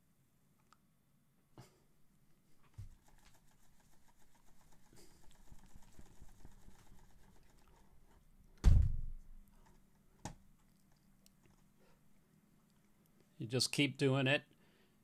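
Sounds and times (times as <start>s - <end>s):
fingers rubbing decal paper: 2.8s - 8.1s
dull thump: 8.6s - 9.3s.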